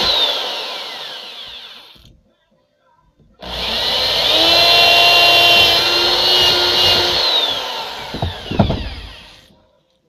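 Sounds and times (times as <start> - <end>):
electric drill boring wood: 0.0 - 2.1, 3.4 - 9.5
knocks: 8.0 - 9.5.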